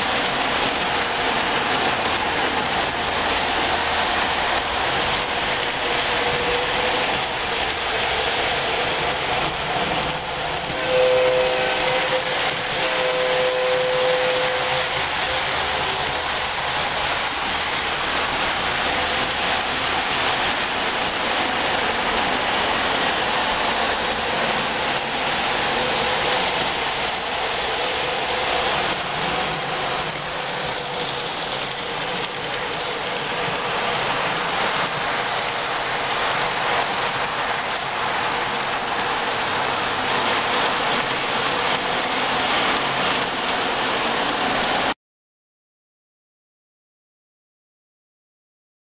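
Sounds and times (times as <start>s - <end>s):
model train running on track: 0.0s - 45.0s.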